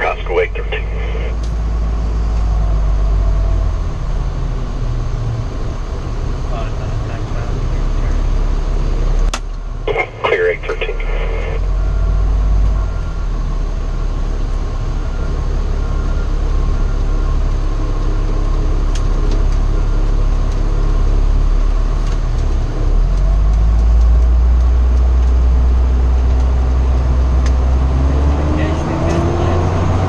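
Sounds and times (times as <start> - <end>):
truck engine rumble in cab: 0.0 - 30.0.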